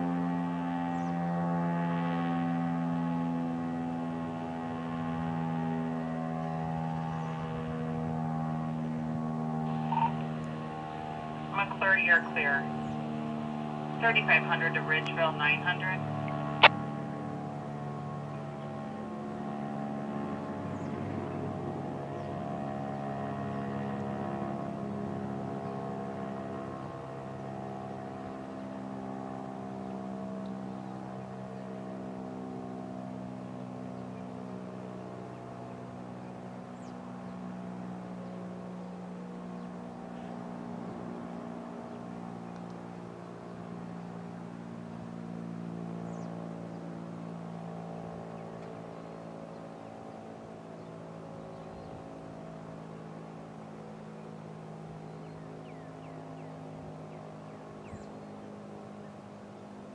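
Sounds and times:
fire siren steady tone: 0.0s - 20.3s.

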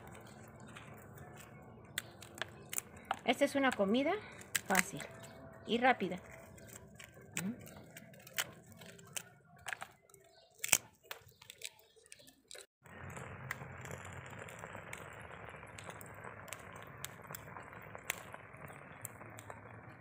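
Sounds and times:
dried chiles crackling as torn: 0.0s - 19.9s
steak sizzling in hot oil: 12.9s - 20.0s.

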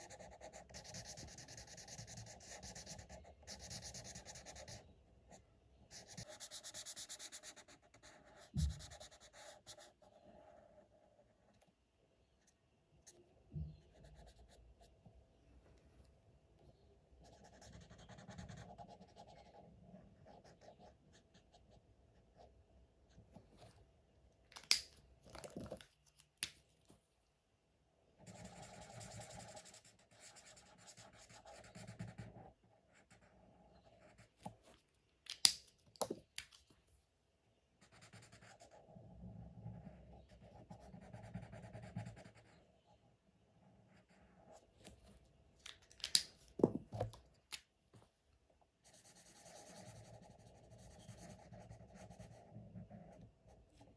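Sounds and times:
markers scratching on paper: 0.0s - 4.8s, 5.9s - 10.2s, 28.2s - 34.6s, 39.6s - 42.6s, 48.9s - 53.2s
marker clicks: 24.5s - 26.6s, 35.3s - 36.7s, 45.6s - 47.7s.

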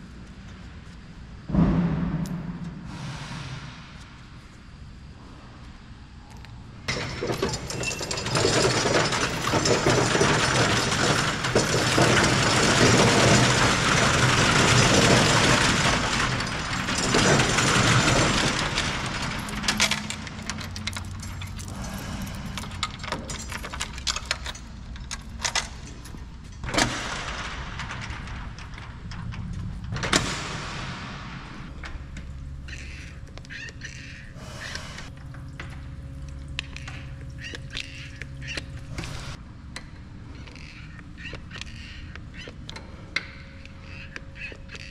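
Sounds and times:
metal shutter door rattling: 6.9s - 34.3s.

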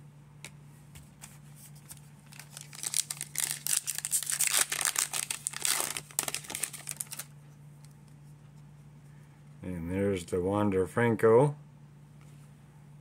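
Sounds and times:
foil wrapper tearing and crinkling: 2.2s - 7.3s.

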